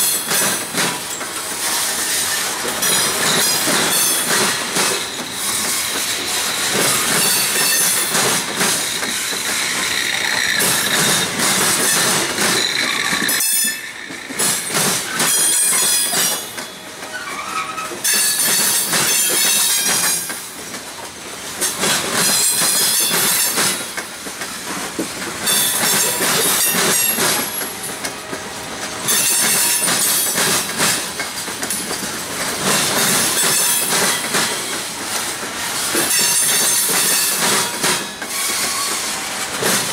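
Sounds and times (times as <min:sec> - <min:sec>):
train wheels clattering over crossing: 0:00.0 - 0:39.9
high wheel squeal: 0:05.1 - 0:08.1, 0:09.0 - 0:14.2, 0:17.1 - 0:18.8, 0:38.3 - 0:39.1.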